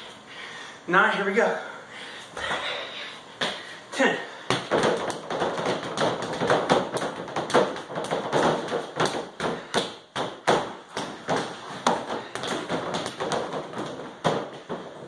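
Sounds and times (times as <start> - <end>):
fists punching padded bag: 4.5 - 15.0.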